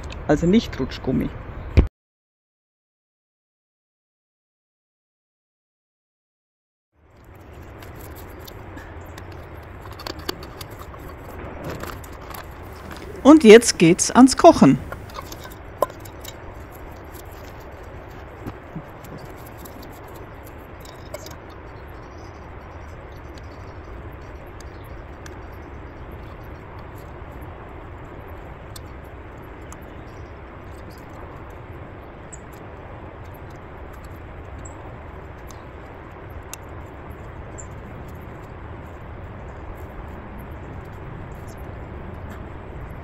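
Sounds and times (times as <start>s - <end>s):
outdoor rumble and hiss: 0.0s - 1.9s, 7.0s - 43.0s
camping gear rustling and knocking: 7.3s - 13.3s, 14.8s - 21.6s.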